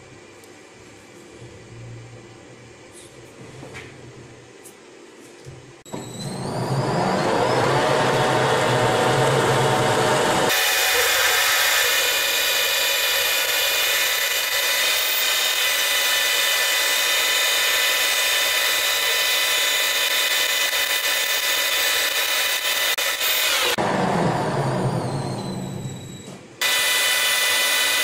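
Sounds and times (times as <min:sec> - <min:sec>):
lathe drilling metal: 0:06.3 - 0:25.8, 0:26.6 - 0:28.0
lathe running hum: 0:06.6 - 0:25.4.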